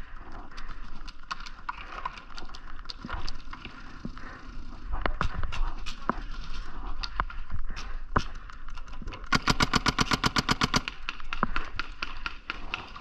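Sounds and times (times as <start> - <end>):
paintball marker firing: 9.3 - 12.9.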